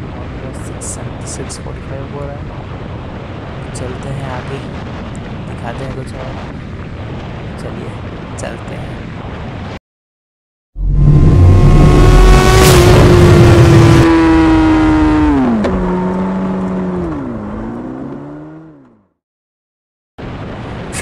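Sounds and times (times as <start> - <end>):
rushing noise: 10.8 - 15.6
motorcycle engine high-revving: 10.8 - 18.9.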